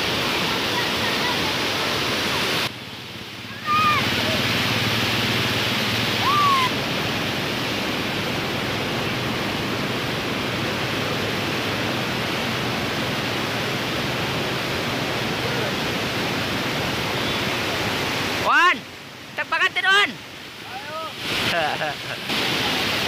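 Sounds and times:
floodwater rushing: 0:00.0 - 0:23.0.

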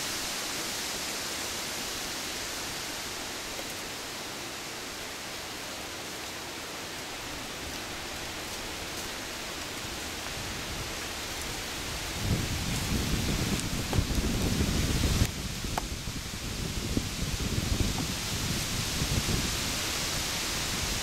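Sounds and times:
wind rushing through woods: 0:00.0 - 0:21.0
wind buffeting microphone: 0:09.8 - 0:21.0.

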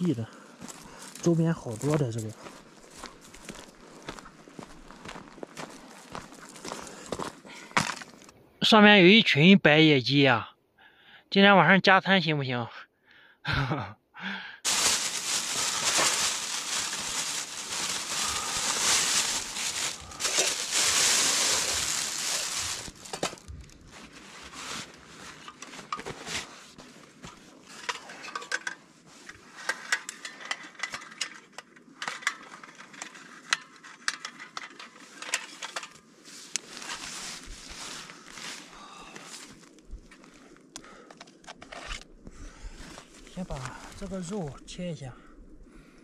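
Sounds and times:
steady rushing hiss: 0:14.7 - 0:23.4
metal camp stove clinking: 0:27.8 - 0:28.8.

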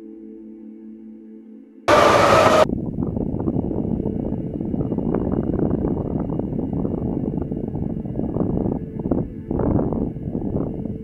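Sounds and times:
hissing burst: 0:01.9 - 0:02.6.

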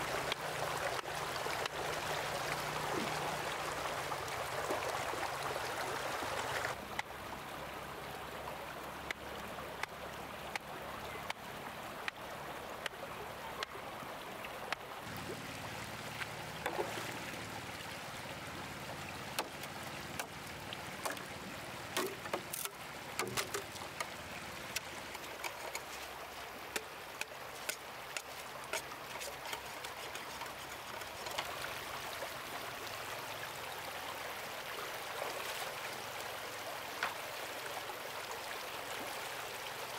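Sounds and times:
stream water running: 0:00.0 - 0:39.9
sharp knocks and clicks: 0:22.0 - 0:24.1.

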